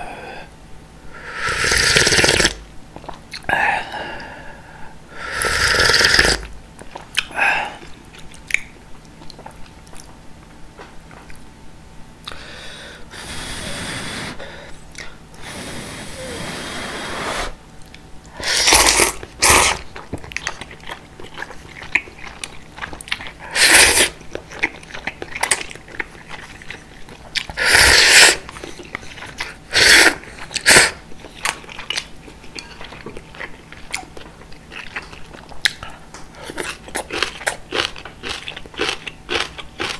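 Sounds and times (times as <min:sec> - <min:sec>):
slurping noodles: 0:01.3 - 0:02.6, 0:05.3 - 0:06.5, 0:13.1 - 0:14.4, 0:15.4 - 0:17.6, 0:18.4 - 0:19.8, 0:23.4 - 0:24.2, 0:27.6 - 0:31.0
soft chewing: 0:02.9 - 0:03.5, 0:06.8 - 0:11.5, 0:17.7 - 0:23.5, 0:24.2 - 0:27.6, 0:28.4 - 0:29.6, 0:30.2 - 0:39.9.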